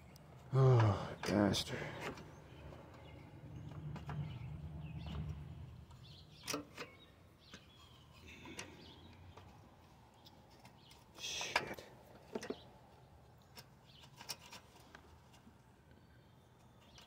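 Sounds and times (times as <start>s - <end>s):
low rumble: 1.8s - 6.5s.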